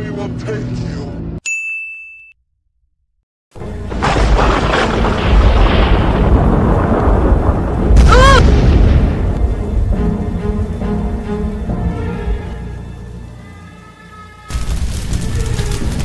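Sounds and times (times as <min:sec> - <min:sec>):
heavy rain: 0:03.6 - 0:09.8, 0:14.5 - 0:16.0
loud boom: 0:03.8 - 0:09.6
low sustained music tones: 0:09.4 - 0:16.0.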